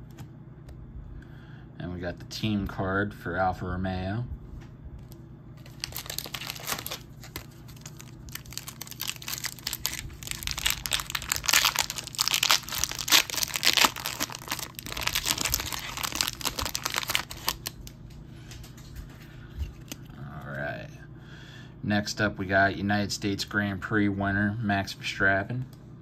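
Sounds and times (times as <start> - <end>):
foil wrapper crinkling and tearing: 5.6 - 18.0.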